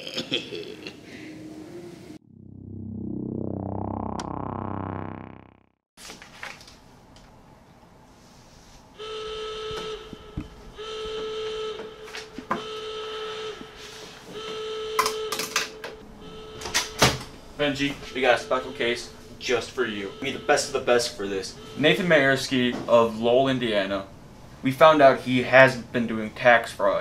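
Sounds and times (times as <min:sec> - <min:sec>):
repeating electronic tone: 0:02.2 - 0:05.7, 0:16.2 - 0:22.0
synthesized rising sweep: 0:02.2 - 0:05.8
paper rustling: 0:06.0 - 0:06.8.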